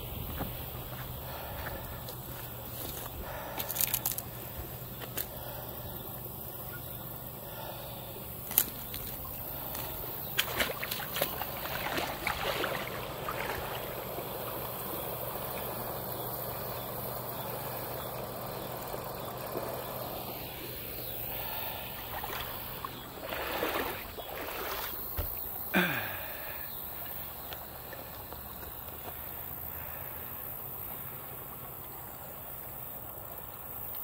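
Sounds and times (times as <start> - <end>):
water trickling and gurgling: 6.5 - 29.5
water splashing: 8.4 - 16.0, 21.4 - 25.6.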